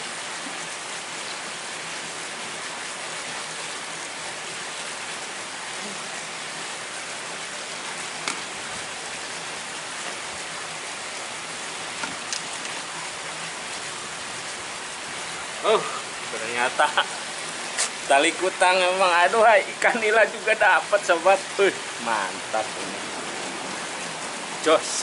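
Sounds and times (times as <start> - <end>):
steady rushing hiss: 2.4 - 25.0.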